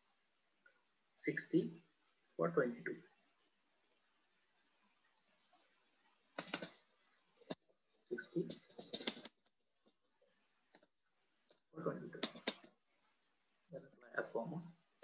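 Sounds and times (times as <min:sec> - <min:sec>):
typing on computer keyboard: 0:06.4 - 0:06.8, 0:08.4 - 0:09.5, 0:12.2 - 0:12.7.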